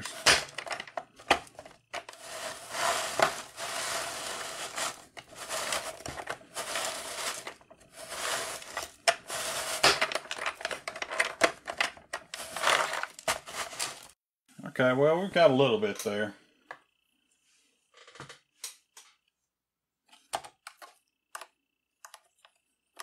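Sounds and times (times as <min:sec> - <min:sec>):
scraper grating ice cream: 0:01.2 - 0:09.9.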